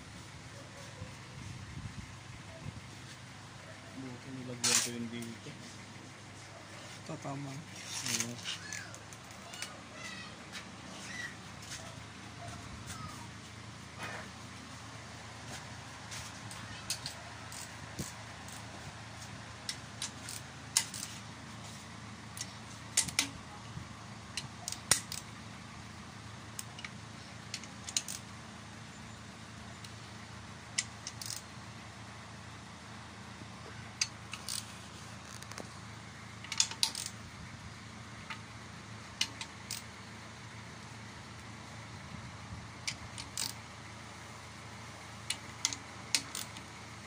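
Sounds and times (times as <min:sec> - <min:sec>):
steady low hum: 0:00.0 - 0:47.0
wrench and bolts clinking on metal: 0:04.6 - 0:05.0, 0:16.5 - 0:18.8, 0:19.6 - 0:21.2, 0:22.4 - 0:23.4, 0:24.3 - 0:25.3, 0:26.6 - 0:28.2, 0:30.8 - 0:31.4, 0:34.0 - 0:34.7, 0:36.4 - 0:37.2, 0:39.2 - 0:40.0, 0:42.9 - 0:43.6, 0:45.2 - 0:46.7.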